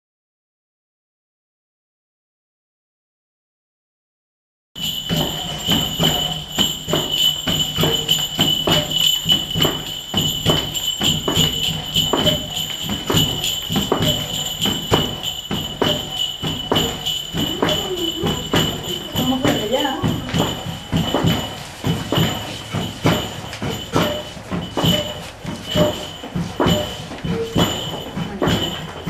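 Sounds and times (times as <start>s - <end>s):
bells jingling: 4.8s - 29.0s
constant high ringing: 4.8s - 29.0s.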